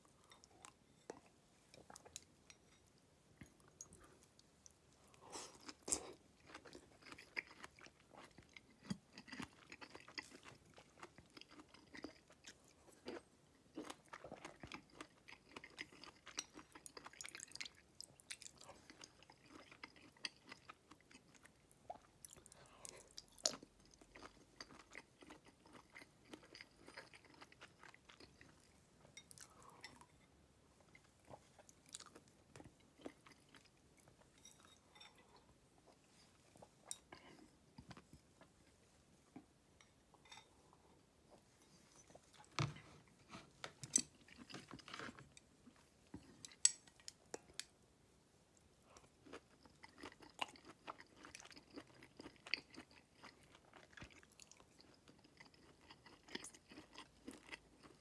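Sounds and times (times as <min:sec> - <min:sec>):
close-up chewing: 0:03.4 - 0:30.1, 0:48.9 - 0:58.0.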